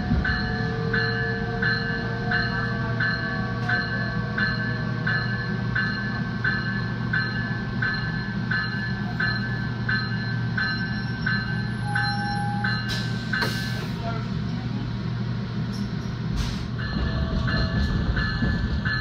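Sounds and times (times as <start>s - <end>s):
train bell ringing: 0.0s - 14.3s, 15.7s - 19.0s
train running hum: 0.0s - 19.0s.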